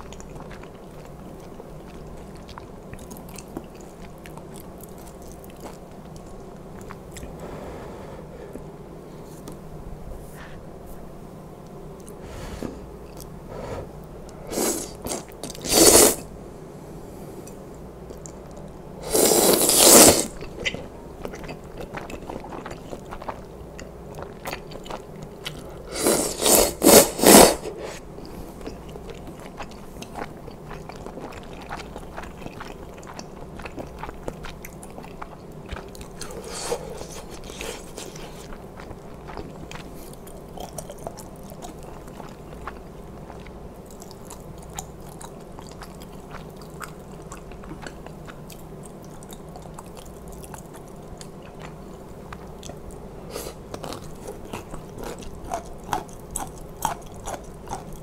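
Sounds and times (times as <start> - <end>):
chewing with wet mouth clicks: 0.0 - 7.4, 17.5 - 18.8, 20.4 - 25.8, 28.6 - 53.1, 53.7 - 58.0
slurping noodles: 14.5 - 16.3, 19.0 - 20.4, 25.9 - 28.0.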